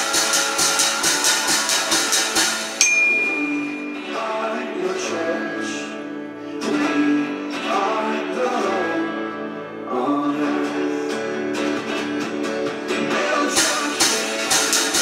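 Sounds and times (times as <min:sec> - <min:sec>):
strummed acoustic guitar: 0:00.0 - 0:15.0
faint singing: 0:13.0 - 0:15.0.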